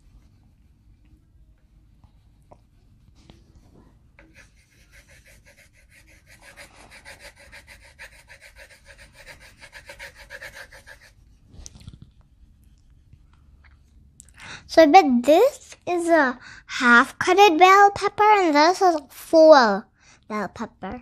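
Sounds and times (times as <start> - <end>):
pencils scratching on paper: 4.2 - 11.2.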